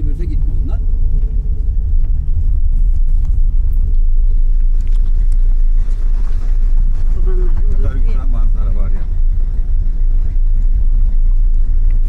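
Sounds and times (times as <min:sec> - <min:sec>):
car engine and tyre rumble: 0:00.0 - 0:12.0.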